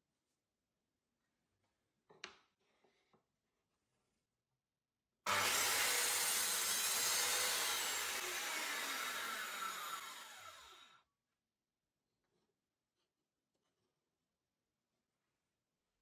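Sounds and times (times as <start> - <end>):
circular saw running: 5.3 - 11.0
saw winding down whine: 5.3 - 11.0.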